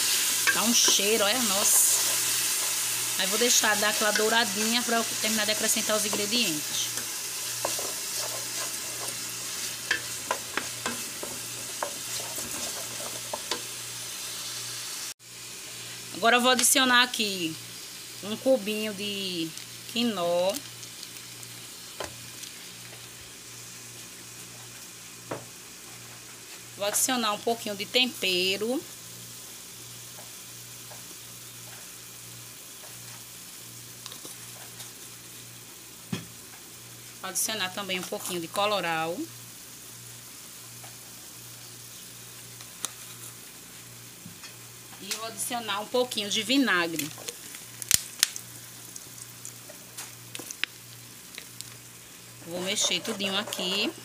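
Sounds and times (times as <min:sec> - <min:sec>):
food sizzling in oil: 0:00.0 - 0:54.0
wooden spoon scraping pot: 0:00.5 - 0:02.9, 0:05.0 - 0:13.7, 0:52.5 - 0:54.0.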